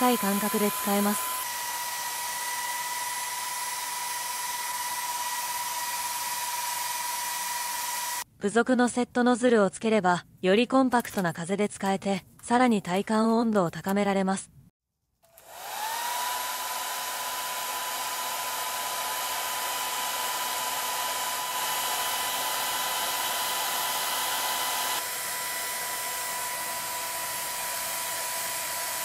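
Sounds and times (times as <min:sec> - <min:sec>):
hair dryer whine: 0:00.0 - 0:08.3, 0:15.3 - 0:29.0.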